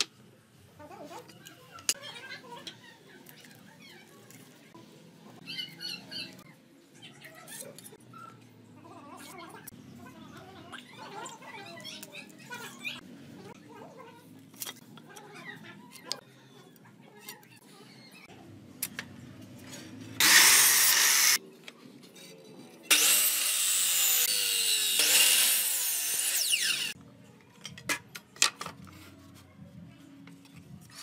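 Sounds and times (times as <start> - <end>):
electric miter saw cutting wood: 20.2 - 21.4, 22.9 - 27.0.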